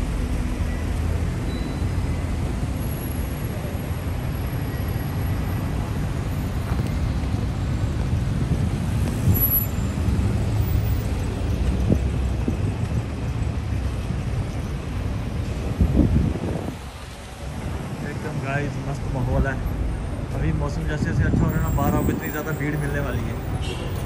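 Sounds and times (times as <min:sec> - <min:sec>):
low rumble of passing traffic: 0:00.0 - 0:24.0.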